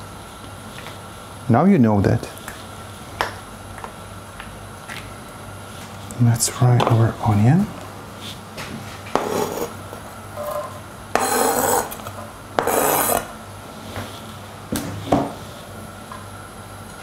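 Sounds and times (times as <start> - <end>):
onion scraped off board into pan: 9.1 - 9.8, 11.1 - 12.0, 12.6 - 13.3.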